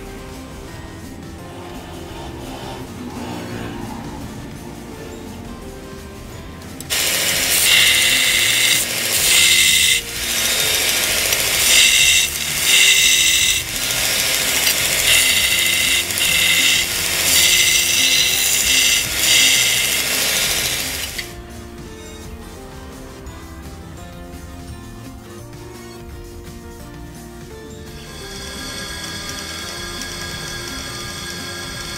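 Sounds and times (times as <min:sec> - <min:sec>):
belt grinder grinding steel: 0:01.4 - 0:04.6, 0:06.8 - 0:21.4, 0:27.8 - 0:31.9.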